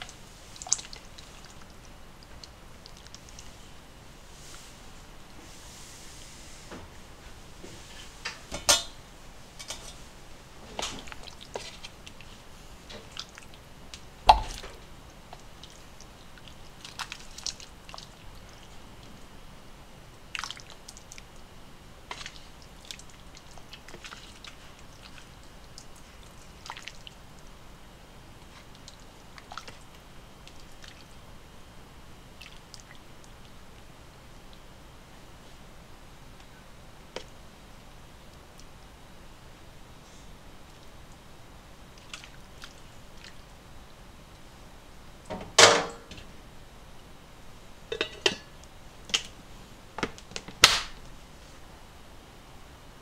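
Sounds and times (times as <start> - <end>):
broth splashing and dripping: 0.6 - 3.5, 20.3 - 21.3.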